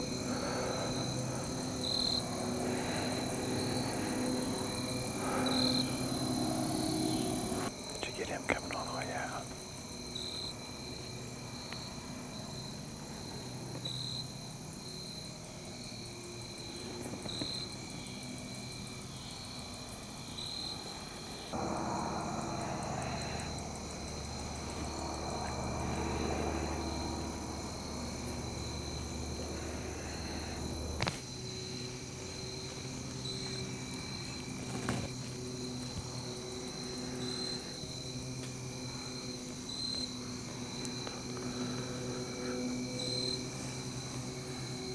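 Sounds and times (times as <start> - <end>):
low drone with rushing noise: 0.0 - 9.6, 21.5 - 44.9
crickets and katydids trilling: 0.0 - 44.9
insect chirps: 0.0 - 44.9.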